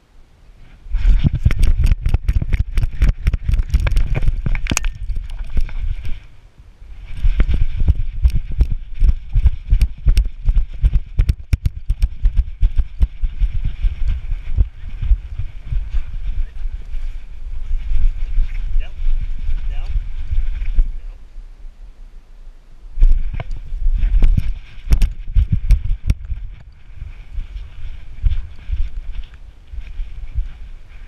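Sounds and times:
wind rumble on microphone: 0.0s - 31.0s
camera harness knocking and rattling: 1.2s - 5.8s.

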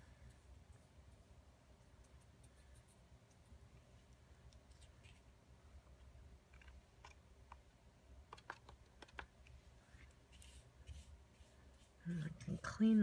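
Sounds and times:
brush strokes on card: 0.0s - 3.5s, 9.8s - 13.0s
faint low hum: 0.0s - 13.0s.

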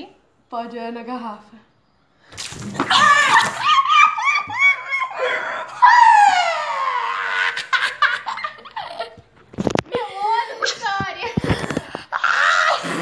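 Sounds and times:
high-pitched laughing: 2.8s - 9.2s.

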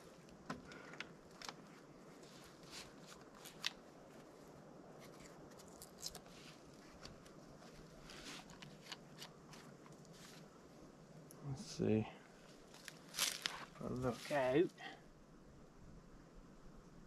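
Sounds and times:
handling clicks and rustles: 0.0s - 10.5s.

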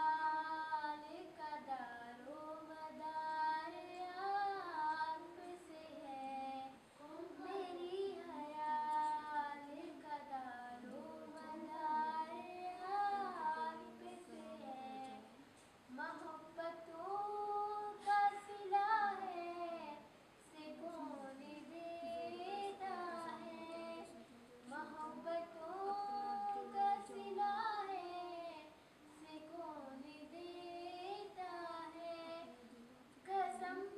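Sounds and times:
girl singing devotional song: 0.0s - 33.9s.

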